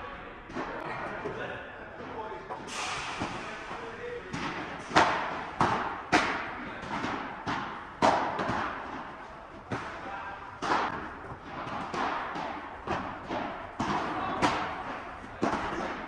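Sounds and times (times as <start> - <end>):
ball hitting rackets: 2.6 - 16.0
ball bouncing on court and walls: 4.2 - 16.0.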